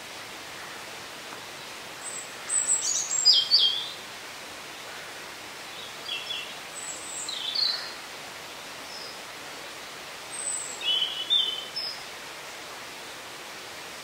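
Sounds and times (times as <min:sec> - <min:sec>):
steady background hiss: 0:00.0 - 0:14.0
songbirds chirping and trilling: 0:00.7 - 0:04.0, 0:04.8 - 0:12.6.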